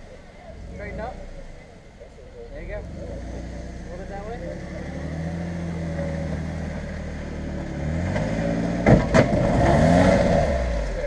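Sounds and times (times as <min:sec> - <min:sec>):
engine running and revving: 0:02.6 - 0:11.0.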